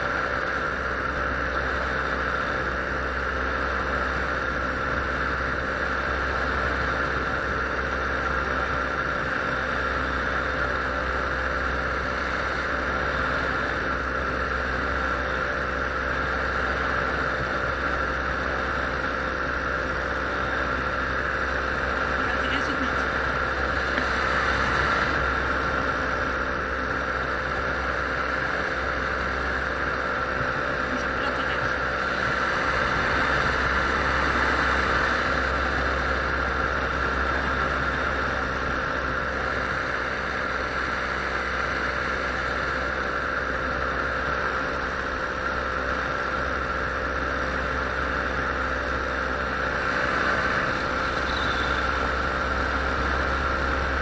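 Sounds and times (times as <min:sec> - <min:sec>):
paramotor engine and propeller drone: 0:00.0 - 0:54.0.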